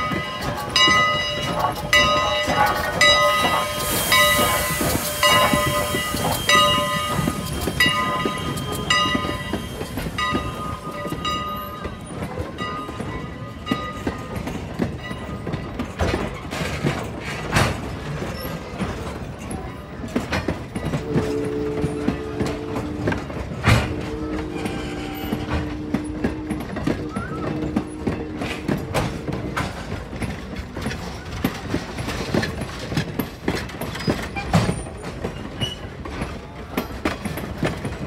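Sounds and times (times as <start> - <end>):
train wheels clicking over rail joints: 0.0 - 38.0.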